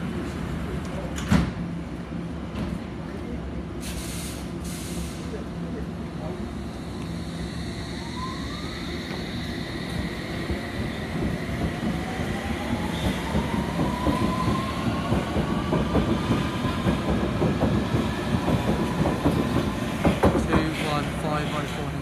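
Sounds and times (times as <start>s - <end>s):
train traction motors whining: 6.5s - 16.2s
train wheels clattering over rail joints: 15.1s - 21.0s.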